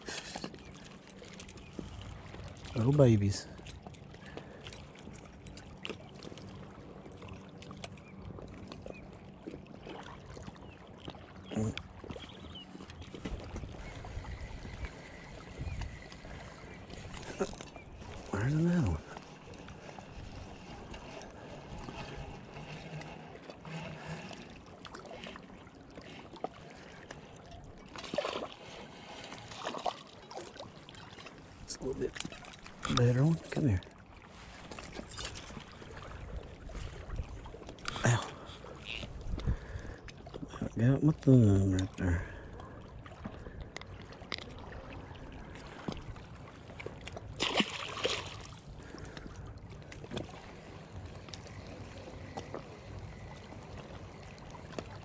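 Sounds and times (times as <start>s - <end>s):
small waves lapping on rocks: 0.0s - 55.0s
low wind rumble on microphone: 12.2s - 19.1s, 38.9s - 40.6s
water splash: 47.4s - 48.6s.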